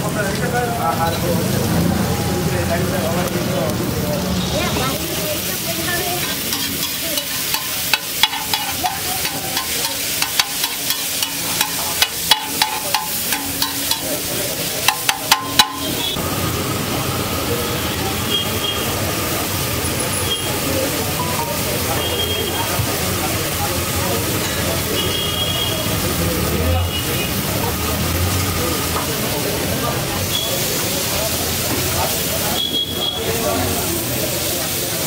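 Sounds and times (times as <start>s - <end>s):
food sizzling on griddle: 0.0s - 35.0s
spatula clacking on griddle: 6.0s - 16.2s.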